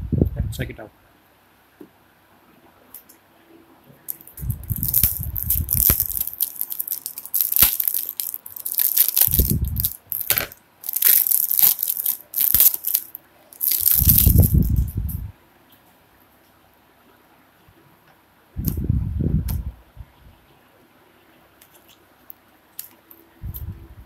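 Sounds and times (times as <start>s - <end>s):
shrink-wrap crackling and crinkling: 4.1s - 15.1s
low handling rumble: 4.3s - 6.4s, 13.8s - 15.4s.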